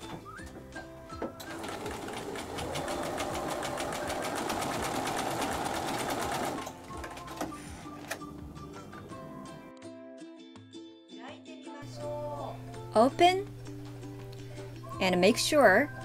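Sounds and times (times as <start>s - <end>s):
sewing machine stitching: 1.4s - 7.4s.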